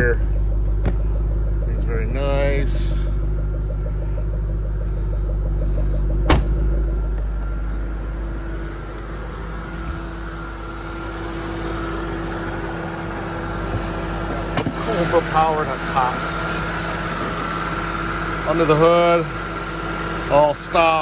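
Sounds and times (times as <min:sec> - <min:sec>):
car engine idling: 0:00.0 - 0:21.0
trunk lid thump: 0:00.6 - 0:01.2, 0:05.4 - 0:07.8, 0:13.7 - 0:14.8.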